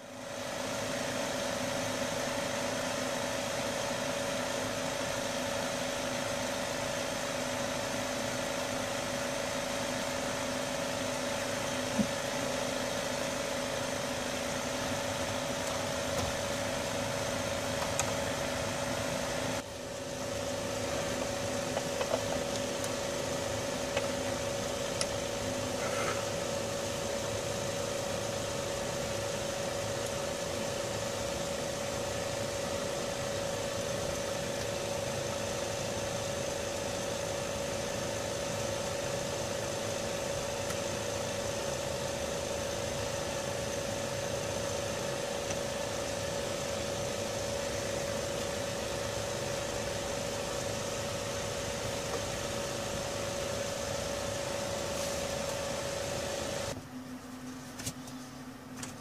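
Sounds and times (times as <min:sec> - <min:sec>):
fan humming with whine: 0:00.0 - 0:59.0.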